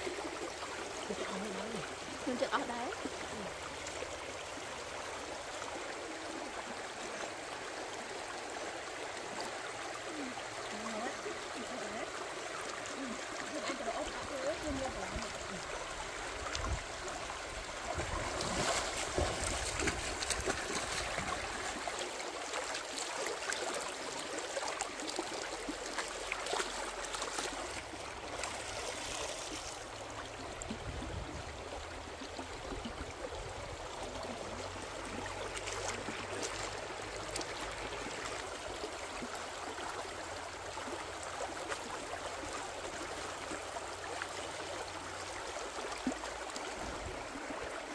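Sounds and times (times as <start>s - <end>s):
stream running over stones: 0.0s - 47.9s.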